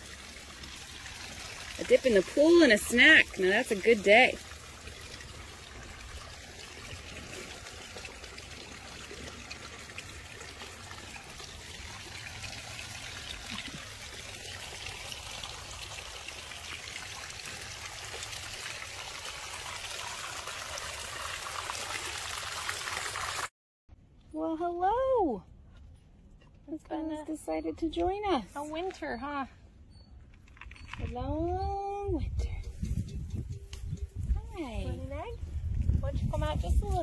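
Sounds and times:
water trickling: 0:00.0 - 0:23.5.

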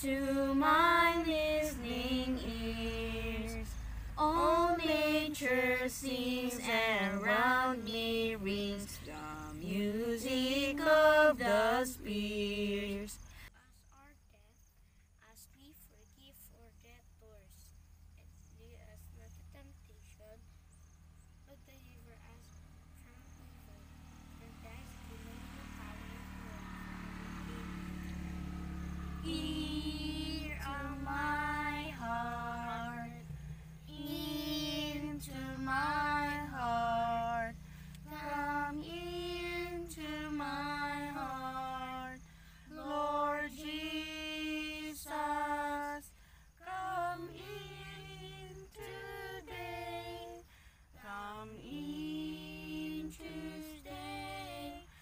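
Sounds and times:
woman and children singing a hymn: 0:00.0 - 0:14.6, 0:15.2 - 0:20.5, 0:21.4 - 0:55.0.

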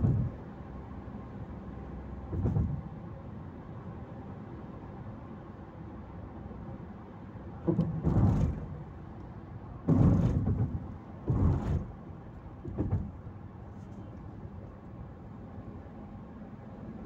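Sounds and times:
low rumbling bumps: 0:00.0 - 0:00.4, 0:02.2 - 0:03.0, 0:07.6 - 0:14.5
car road noise: 0:00.0 - 0:17.0.

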